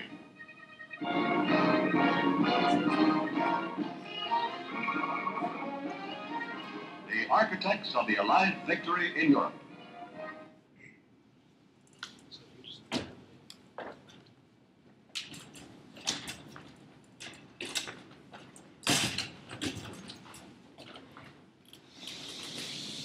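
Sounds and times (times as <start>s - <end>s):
metal chairs clattering on floor: 15.3s - 21.3s.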